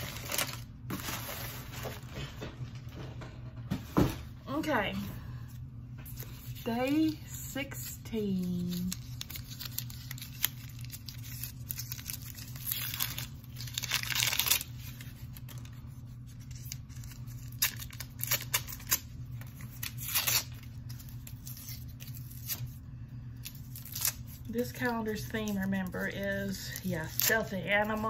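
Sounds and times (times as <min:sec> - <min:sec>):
wrapping paper tearing and crumpling: 0:00.0 - 0:02.1, 0:08.2 - 0:28.0.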